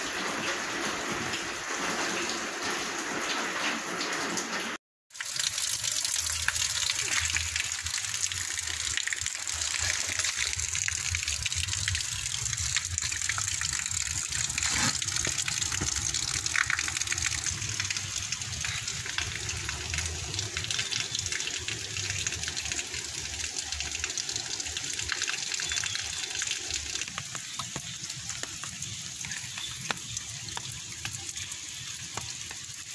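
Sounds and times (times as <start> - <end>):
water flowing along a drain: 0.0 - 32.9.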